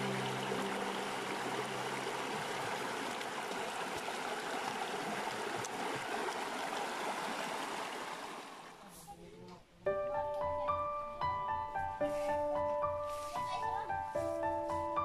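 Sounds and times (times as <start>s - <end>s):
river flowing over rocks: 0.0s - 8.6s.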